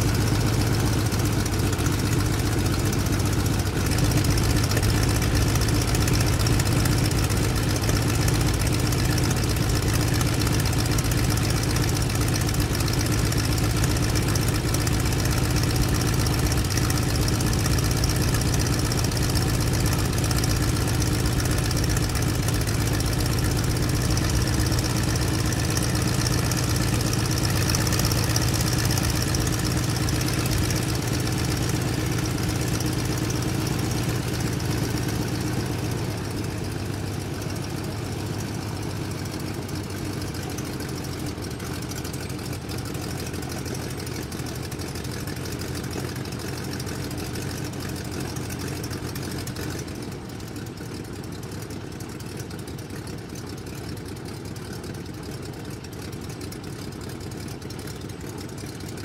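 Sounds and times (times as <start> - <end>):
airplane engine idling: 0.0 - 50.8.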